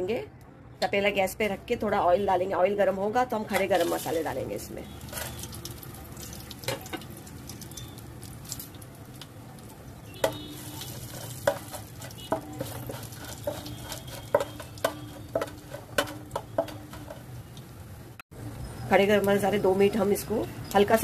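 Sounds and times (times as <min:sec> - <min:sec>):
spices sizzling in hot oil: 0:03.4 - 0:21.0
metal spoon scraping pot: 0:05.0 - 0:05.6, 0:10.2 - 0:17.3.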